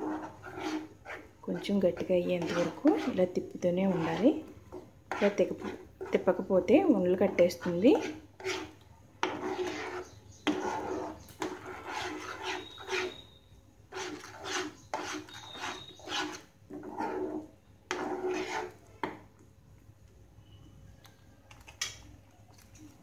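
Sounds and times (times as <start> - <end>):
spatula scraping frying pan: 0.0 - 6.5, 7.2 - 19.1.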